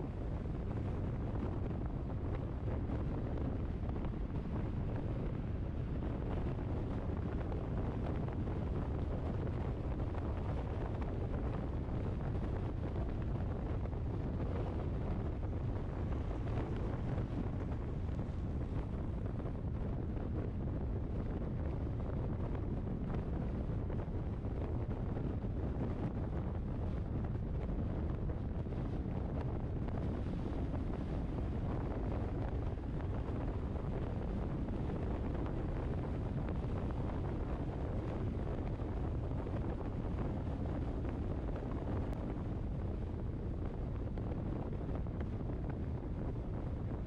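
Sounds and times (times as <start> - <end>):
wind buffeting the microphone: 0.0 - 47.0.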